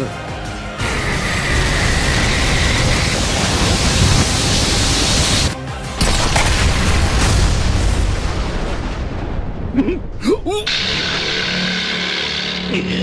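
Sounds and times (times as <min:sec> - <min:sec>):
music: 0:00.0 - 0:13.0
loud rushing noise: 0:00.8 - 0:05.6.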